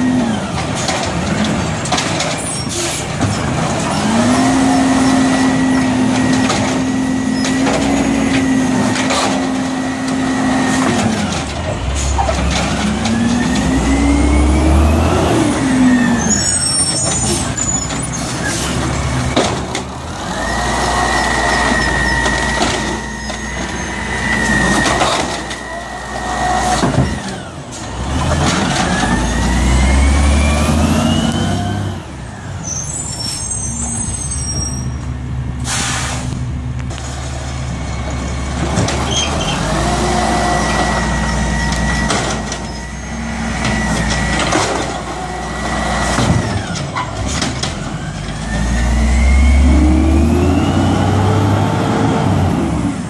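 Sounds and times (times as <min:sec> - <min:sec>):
diesel engine revving: 0:00.0 - 0:53.0
air brake hiss: 0:35.6 - 0:36.4.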